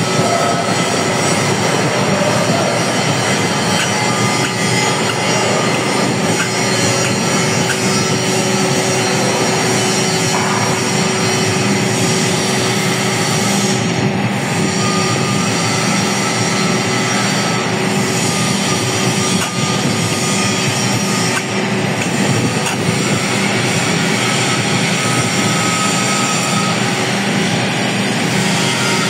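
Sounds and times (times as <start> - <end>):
machine drive hum: 0.0 - 29.0
milling machine clattering: 0.8 - 12.4.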